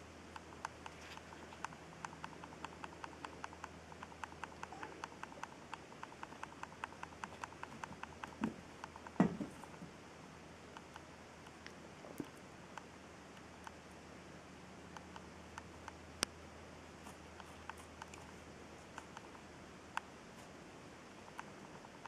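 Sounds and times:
faint even ticking: 0.0 - 9.8.

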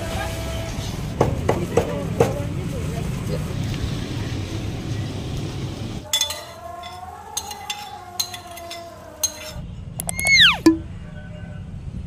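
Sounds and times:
street noise: 0.0 - 12.0
utensil clinking on frying pan: 6.1 - 9.6
whistle falling in pitch: 10.0 - 10.8.

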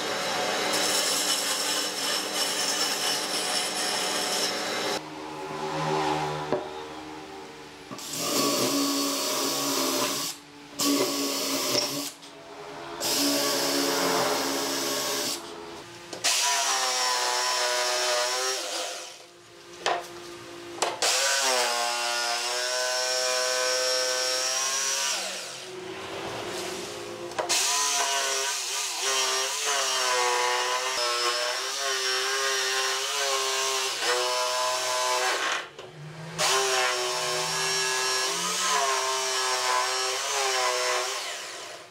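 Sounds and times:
drill running: 7.9 - 12.2, 13.0 - 15.5
jigsaw sawing wood: 13.0 - 15.5, 27.4 - 35.7, 36.4 - 41.8.

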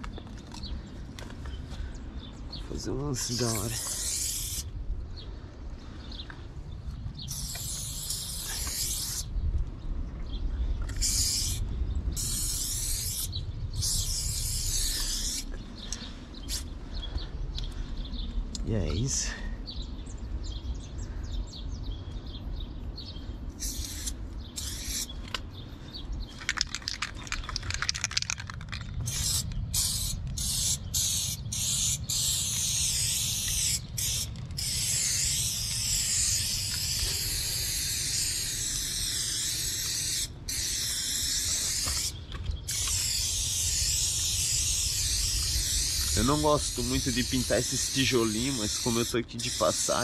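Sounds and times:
spray paint can hissing: 3.2 - 4.7, 7.2 - 9.3, 10.9 - 15.6, 16.4 - 16.7, 23.6 - 25.4, 26.3 - 50.0.

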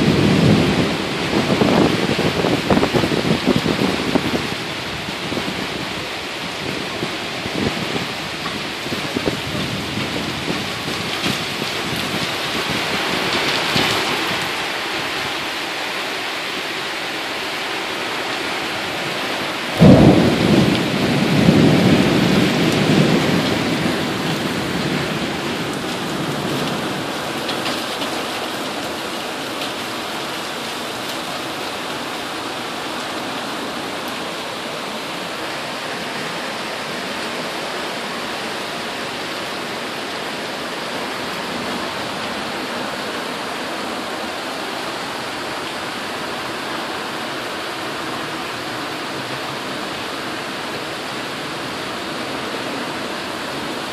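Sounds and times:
steady rain: 0.0 - 53.9
thunder clap and rumble: 19.8 - 27.9.

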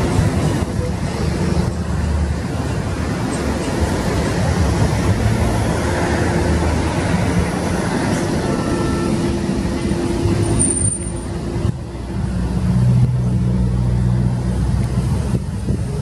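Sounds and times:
wind: 0.0 - 16.0
boat engine droning: 5.5 - 14.4.

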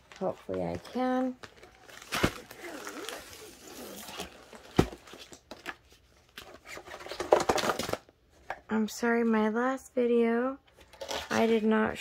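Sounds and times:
packaging rustling and crinkling: 0.0 - 8.1.

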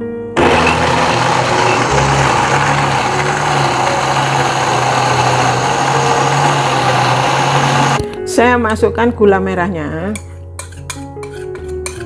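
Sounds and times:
blender motor whirring: 0.4 - 8.0.

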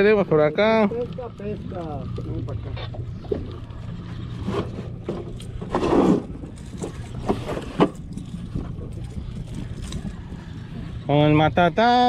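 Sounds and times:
outboard motor idling: 0.0 - 12.0
knocks and clicks on hull: 0.8 - 10.2.

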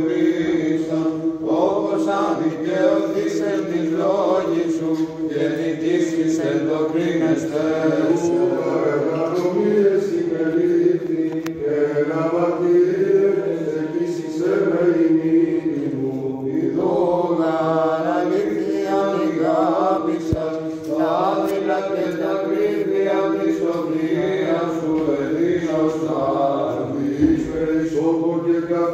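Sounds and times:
steady held drone: 0.0 - 22.0
sung chant melody: 0.0 - 28.9.

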